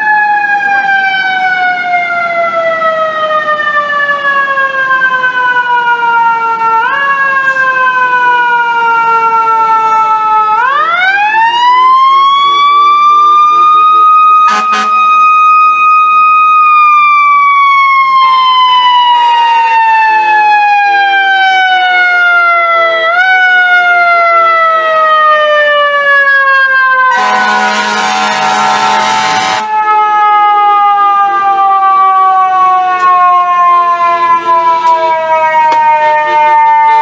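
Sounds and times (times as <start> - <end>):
truck air horn blast: 14.4 - 15.1, 27.1 - 29.7.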